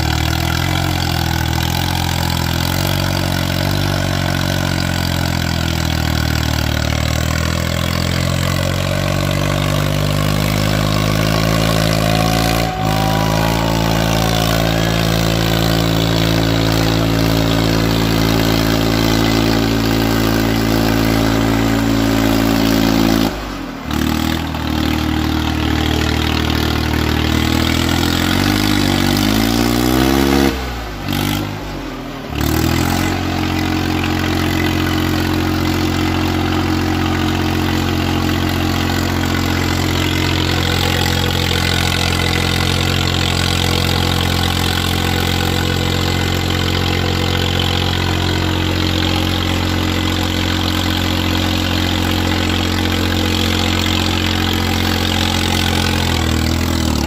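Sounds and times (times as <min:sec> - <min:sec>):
tractor diesel engine running hard: 0:00.0 - 0:57.0.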